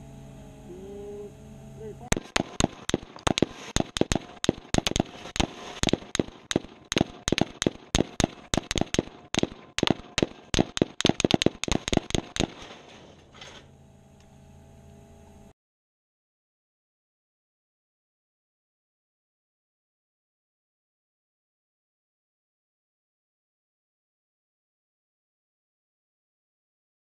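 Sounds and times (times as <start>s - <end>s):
steady hum: 0.0s - 15.5s
rapid gunfire: 2.1s - 12.7s.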